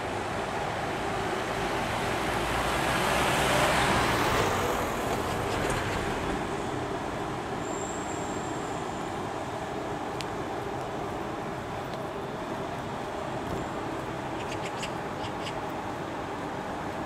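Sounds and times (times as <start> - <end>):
street traffic: 0.0 - 17.0
vehicle passing close by: 1.0 - 6.9
faint high-pitched squeal: 7.6 - 9.4.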